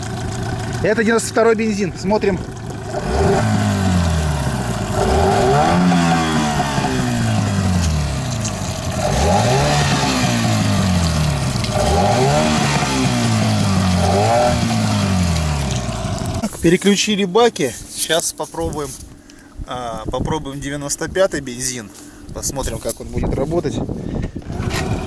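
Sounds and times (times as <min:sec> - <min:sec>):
outboard motor revving: 0:00.0 - 0:16.4, 0:24.4 - 0:25.0.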